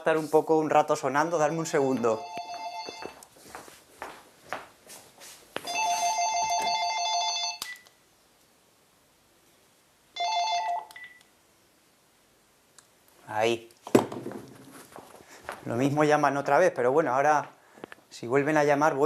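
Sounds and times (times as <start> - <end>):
two-tone electronic telephone ring: 2.2 - 3.2, 5.7 - 7.8, 10.2 - 11.2.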